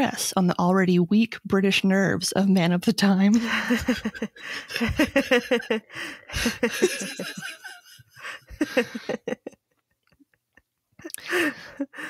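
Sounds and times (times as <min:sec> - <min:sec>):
woman laughing: 0:03.4 - 0:12.0.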